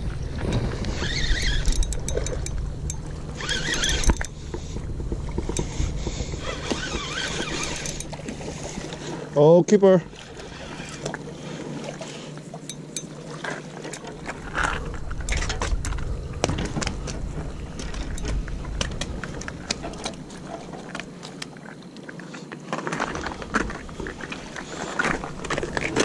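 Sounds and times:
wind rumbling on microphone: 0:00.0 - 0:09.1, 0:14.0 - 0:21.2.

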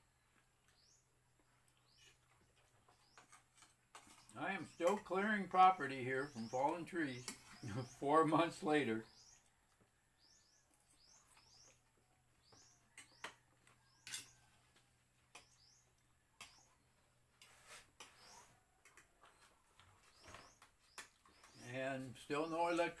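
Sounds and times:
small bird chirping: 0:00.0 - 0:23.0
cutlery clicking on plates: 0:14.0 - 0:14.4.

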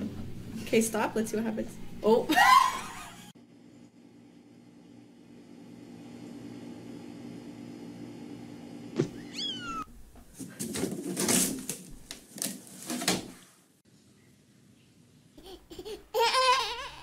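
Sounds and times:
cat meowing: 0:09.2 - 0:09.9.

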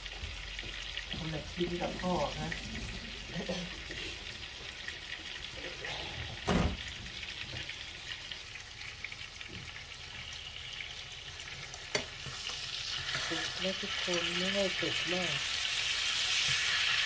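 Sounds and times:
steaks sizzling in a frying pan: 0:00.0 - 0:17.0
thump: 0:06.4 - 0:06.9.

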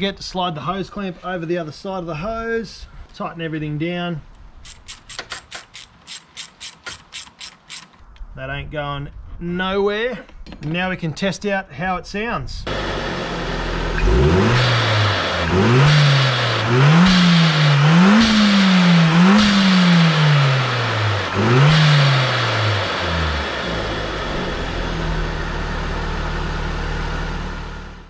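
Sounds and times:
engine idling: 0:12.7 - 0:28.0
engine revving: 0:12.7 - 0:28.0.

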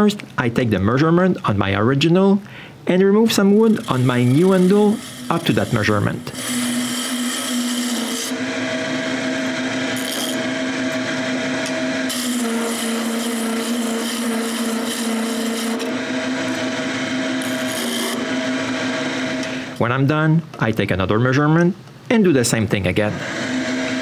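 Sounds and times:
turning tool shaving wood: 0:03.3 - 0:19.4, 0:23.1 - 0:24.0
wood lathe motor hum: 0:03.4 - 0:19.8, 0:23.1 - 0:24.0.

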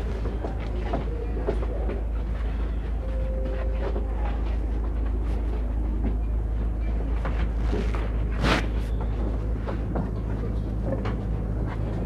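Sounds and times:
train wheels rumbling on track: 0:00.0 - 0:12.0
brief steady tone: 0:02.8 - 0:04.5.

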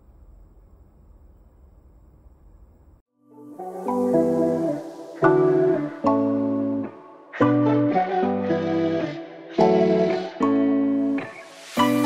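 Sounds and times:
background music with sustained chords: 0:03.1 - 0:12.0.

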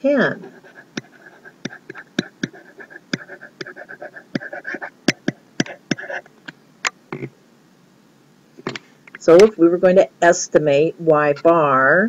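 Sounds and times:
stylus tapping and scratching on tablet: 0:00.0 - 0:07.3.

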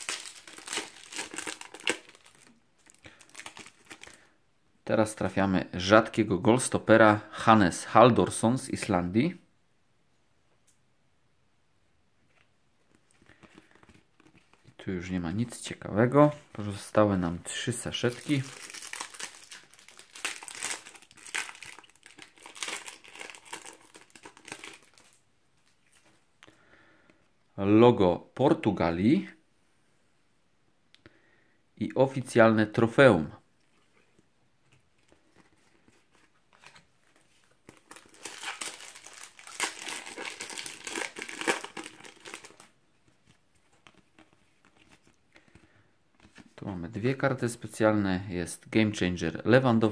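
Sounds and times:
foil packet tearing and crinkling: 0:00.0 - 0:04.2, 0:18.0 - 0:25.2, 0:37.7 - 0:42.7.

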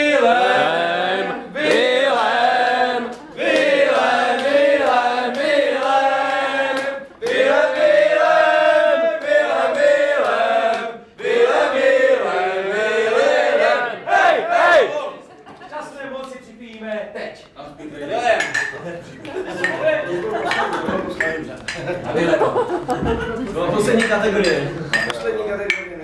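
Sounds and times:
group of voices chanting in unison: 0:00.0 - 0:15.2.

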